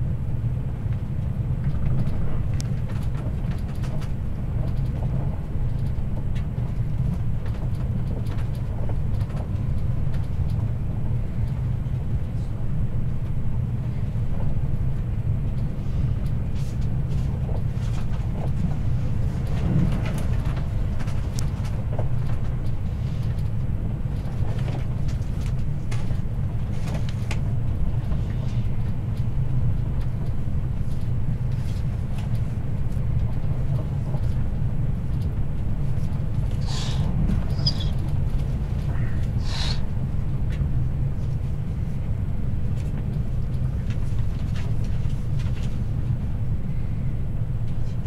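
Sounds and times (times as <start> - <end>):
train wheels rumbling: 0.0 - 48.0
light clicks and rattles: 0.9 - 10.8.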